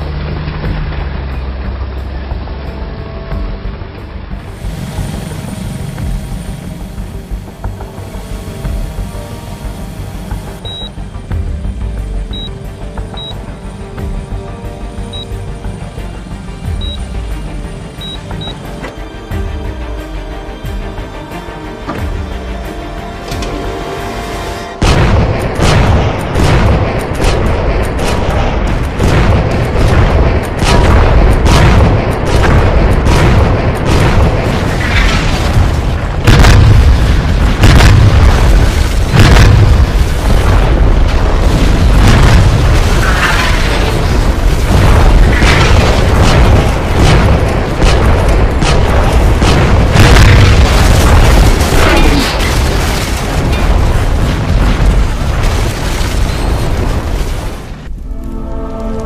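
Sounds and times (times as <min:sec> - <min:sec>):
background music: 0:00.0 - 0:57.0, 0:57.8 - 0:59.0
explosion and cannon booms: 0:24.8 - 0:57.8.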